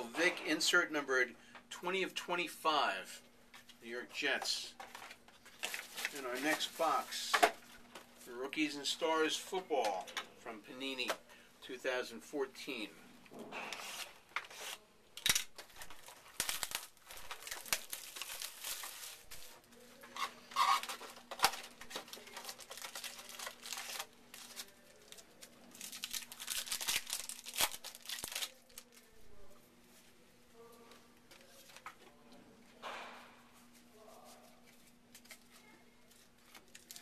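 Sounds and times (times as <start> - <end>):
plastic wrap crinkling: 4.8 - 7.9, 13.8 - 29.6, 33.7 - 37.0.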